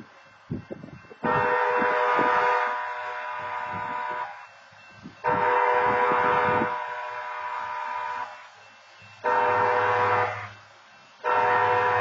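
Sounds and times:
diesel locomotive horn blasts: 1.2s - 4.5s, 5.2s - 8.5s, 9.2s - 10.6s, 11.2s - 12.0s.

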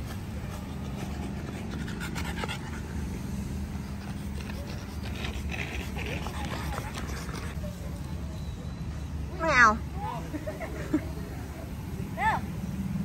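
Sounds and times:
dog panting: 0.0s - 7.6s.

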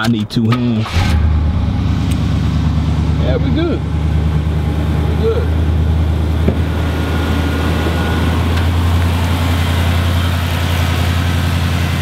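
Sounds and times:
car engine idling: 0.8s - 12.0s.

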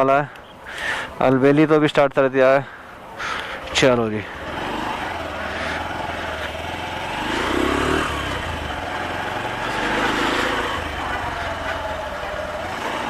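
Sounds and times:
motorcycle engine revving: 4.2s - 13.0s.

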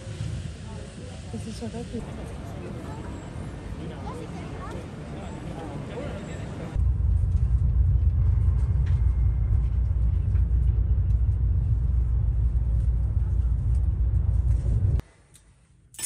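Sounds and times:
train rumbling inside carriage: 0.0s - 3.8s, 6.6s - 15.0s.

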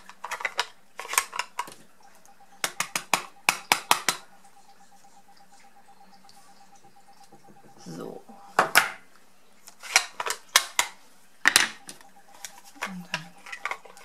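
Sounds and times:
rubber stamp tapping ink pad: 2.6s - 4.2s.

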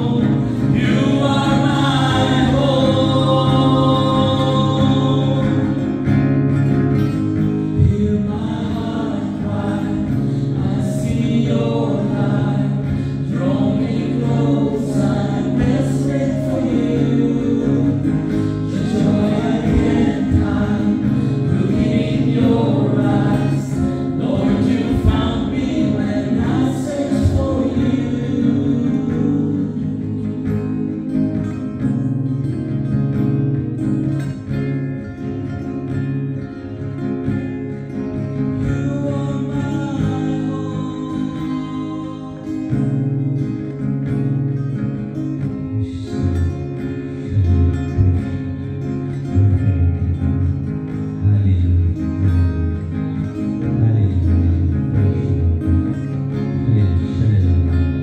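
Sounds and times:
leader singing into microphone: 0.0s - 5.9s, 7.7s - 31.4s
group singing worship song: 0.0s - 33.3s, 36.4s - 58.0s.

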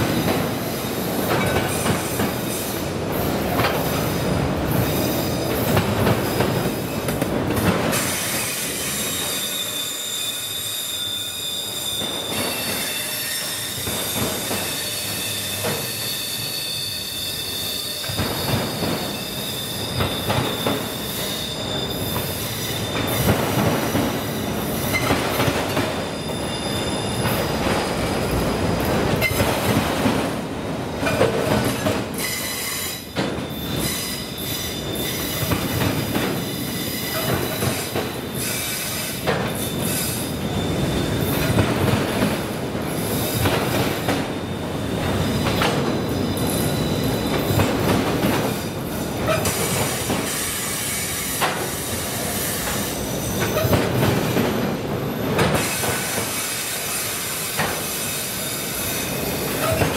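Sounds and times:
clanks over railroad crossing: 0.0s - 9.6s, 11.1s - 58.0s, 58.8s - 59.9s
train wheels rolling on track: 0.0s - 59.9s
high wheel squeal: 8.0s - 23.3s, 25.9s - 28.0s, 36.4s - 41.5s, 45.9s - 47.6s.

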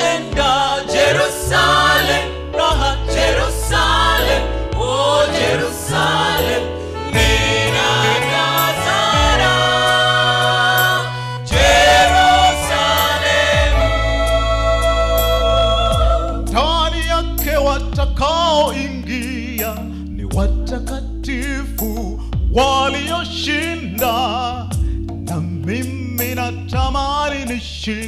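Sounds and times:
gospel choir singing: 0.0s - 17.7s
bass accompaniment: 0.0s - 28.0s.

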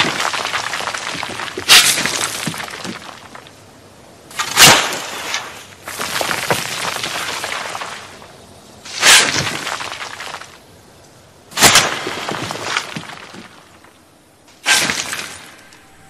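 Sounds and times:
digging in loose soil: 0.0s - 3.6s, 4.3s - 10.6s.

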